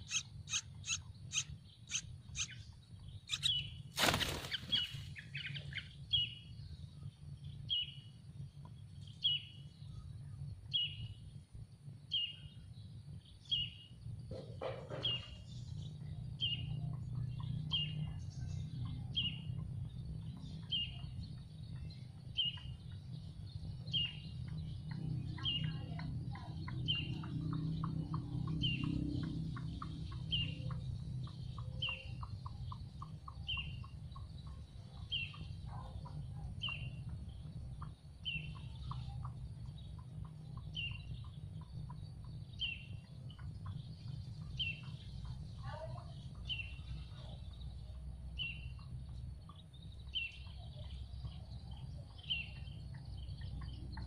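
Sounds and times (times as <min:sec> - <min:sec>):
nestlings begging chirps: 0:00.0 - 0:06.8, 0:16.4 - 0:47.7.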